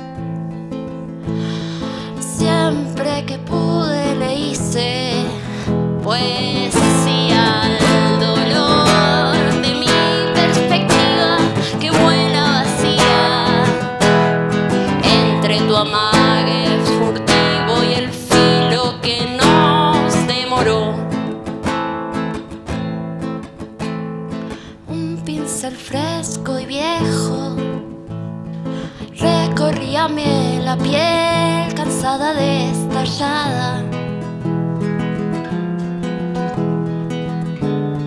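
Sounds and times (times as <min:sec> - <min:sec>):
classical guitar strumming: 0:00.0 - 0:38.0
wordless singing voice: 0:01.5 - 0:21.4.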